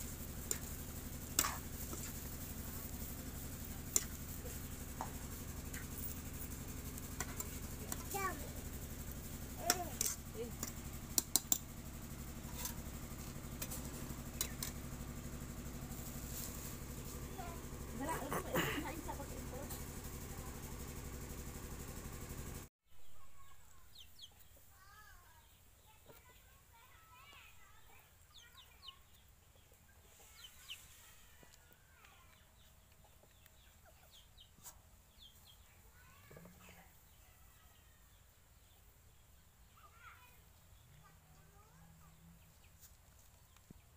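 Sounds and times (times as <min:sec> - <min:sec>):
steady low hum: 0:00.0 - 0:22.7.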